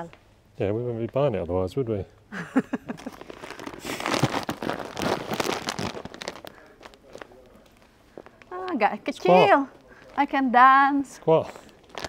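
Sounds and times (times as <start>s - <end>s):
plastic sack rustling: 2.8s - 7.6s, 11.3s - 12.0s.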